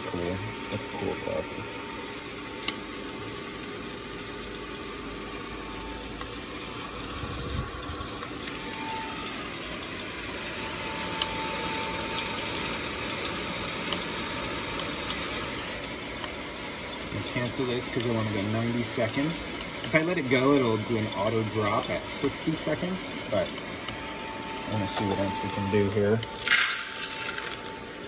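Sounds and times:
coffee roaster whirring: 0.0 - 28.0
coffee beans popping: 26.2 - 27.8.

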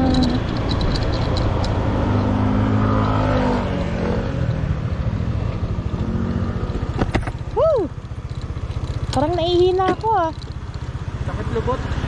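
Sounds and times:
motorcycle engine running: 3.8 - 12.0.

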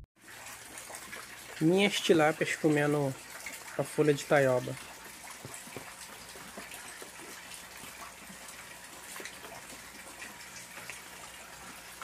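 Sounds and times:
light rain on pond: 0.2 - 12.0
small water drips: 0.2 - 12.0.

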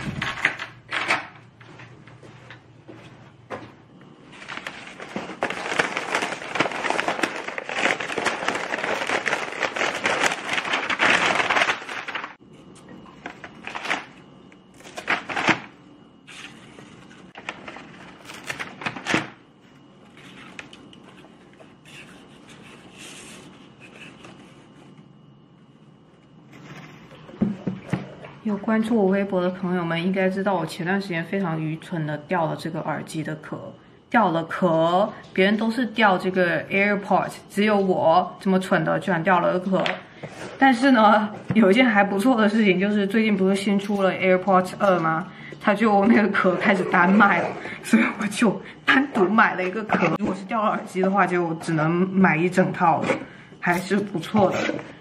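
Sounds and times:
wrapping paper crinkling: 4.3 - 12.4, 13.2 - 19.2.

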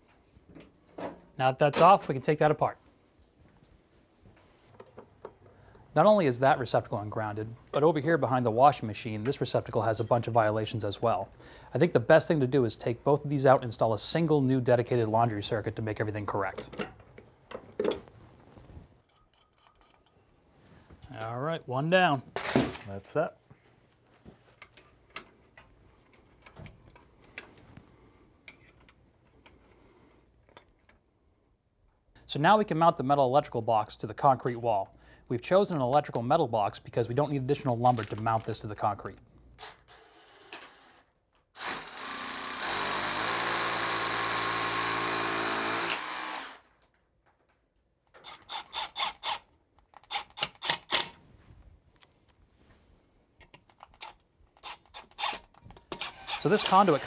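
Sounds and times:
hammer drill drilling into concrete: 41.6 - 46.7, 56.0 - 57.0.

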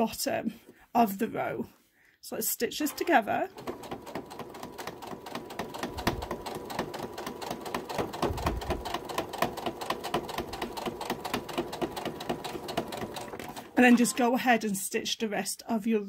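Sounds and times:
sewing machine stitching: 2.8 - 14.3.

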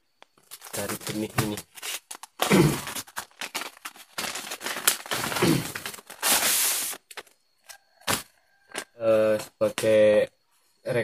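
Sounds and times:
paper rustling and crackling: 0.3 - 7.3.

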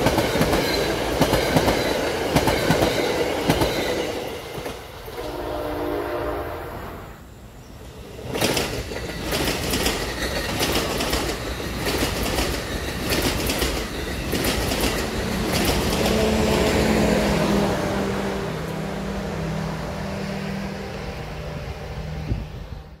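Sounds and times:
train wheels clattering over rail joints: 8.2 - 17.1.

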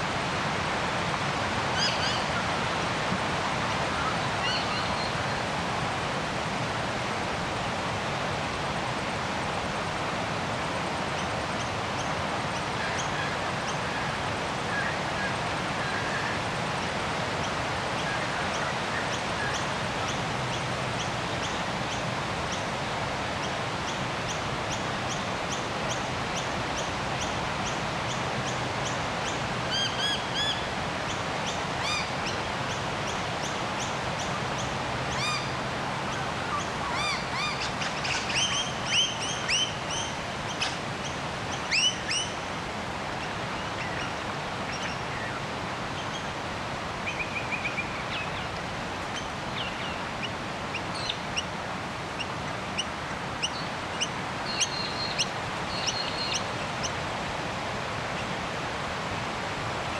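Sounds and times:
steady outdoor hiss: 0.0 - 59.9
wild birds chirping: 23.4 - 42.4, 43.1 - 57.1.

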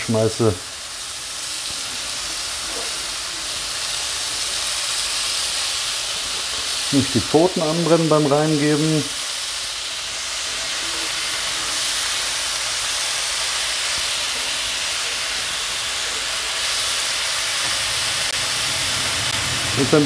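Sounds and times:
chicken sizzling in frying pan: 0.0 - 20.0
extractor hood fan: 17.5 - 20.0.

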